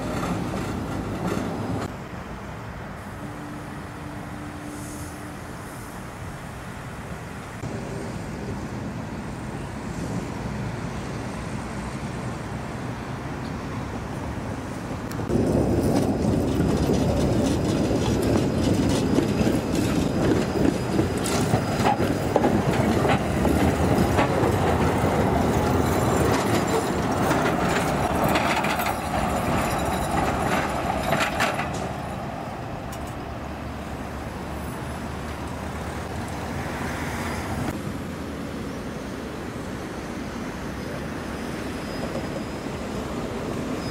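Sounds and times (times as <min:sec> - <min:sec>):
tram wheels rumbling on rails: 0:00.0 - 0:43.9
clicks over rail joints: 0:15.1 - 0:32.1.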